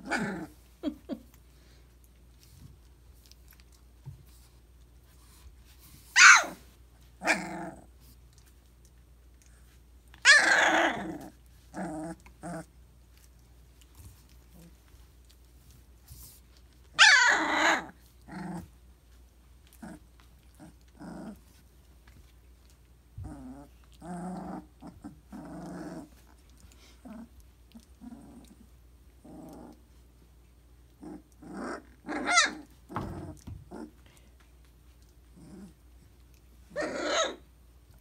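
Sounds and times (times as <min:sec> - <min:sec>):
puppies growling and squealing: 0:00.0 - 0:01.2, 0:10.2 - 0:13.3, 0:17.0 - 0:18.7, 0:19.7 - 0:21.5, 0:23.2 - 0:29.8, 0:30.9 - 0:34.0, 0:36.7 - 0:37.5.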